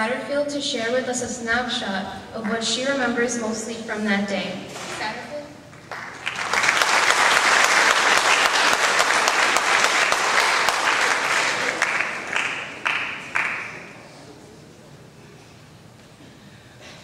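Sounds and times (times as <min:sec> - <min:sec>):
audience applauding: 0:05.7 - 0:14.2.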